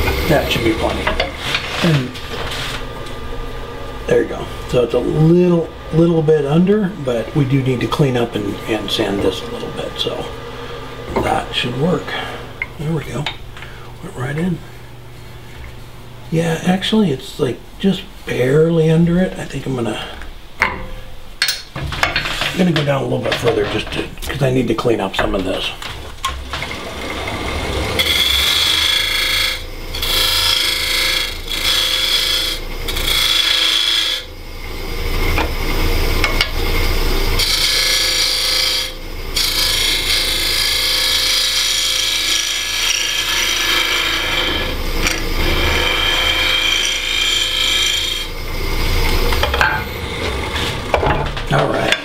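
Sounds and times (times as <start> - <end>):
tool cutting wood on lathe: 0.0 - 3.3, 26.3 - 52.0
lathe humming: 0.0 - 52.0.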